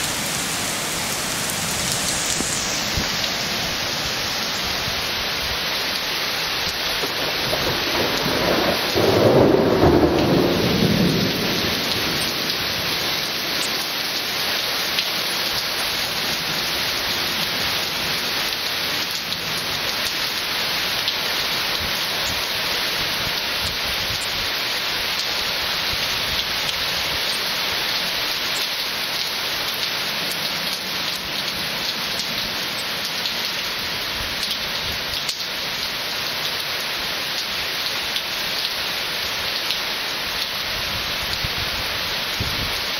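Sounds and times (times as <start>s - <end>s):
heavy rain falling: 0.0s - 42.9s
thunder rolling: 7.0s - 13.0s.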